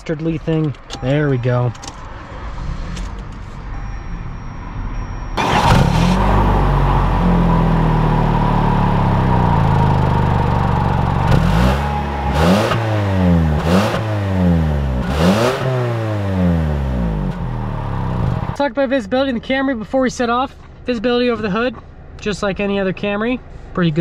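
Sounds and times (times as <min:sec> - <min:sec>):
car engine idling and revving: 0:00.0 - 0:18.6.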